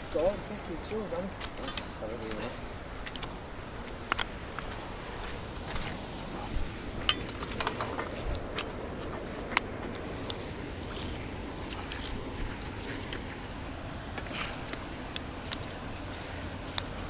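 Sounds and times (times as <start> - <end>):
metal hooks clinking: 1.4 - 2.3, 7.0 - 8.8.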